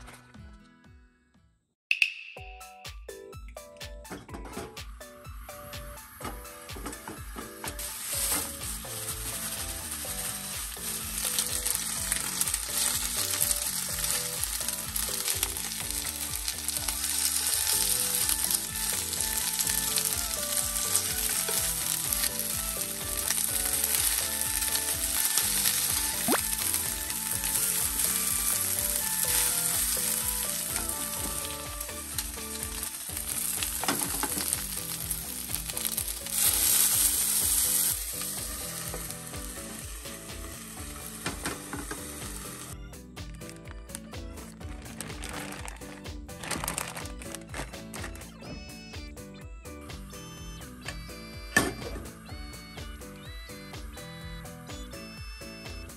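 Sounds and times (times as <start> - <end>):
chicken sizzling in oil: 6.6 - 42.8.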